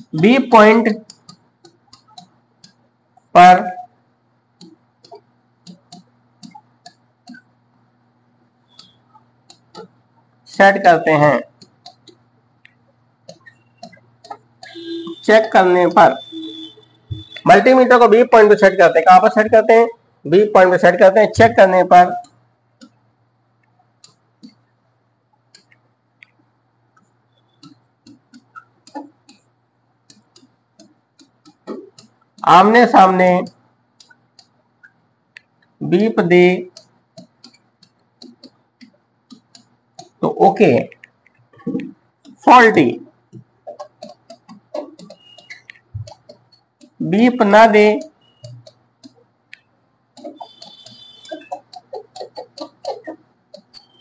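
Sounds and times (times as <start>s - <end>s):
marker pen tapping on board: 0.0s - 2.9s, 4.6s - 7.5s, 8.7s - 10.0s, 11.5s - 17.4s, 21.0s - 23.0s, 24.0s - 24.7s, 27.0s - 35.8s, 36.7s - 54.0s
marker pen squeak: 8.6s - 9.9s, 13.2s - 17.7s, 27.3s - 29.5s, 36.7s - 38.6s, 43.7s - 49.2s, 50.2s - 54.0s.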